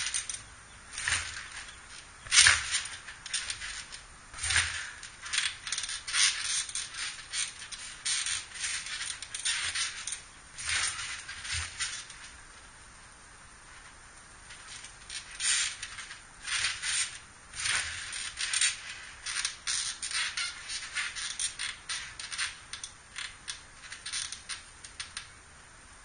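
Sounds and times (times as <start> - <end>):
trampoline landing thumps: 0.0 - 12.5
trampoline springs rattling and creaking: 0.0 - 26.0.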